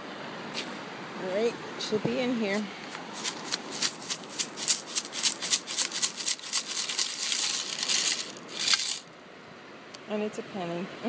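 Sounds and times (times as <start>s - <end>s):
shells rattling in sifting scoop: 3.0s - 9.1s.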